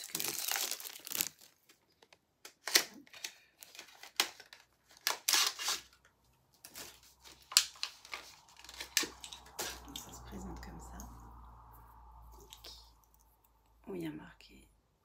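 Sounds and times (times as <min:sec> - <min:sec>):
packaging tearing and crinkling: 0:00.0 - 0:06.0, 0:06.6 - 0:10.1.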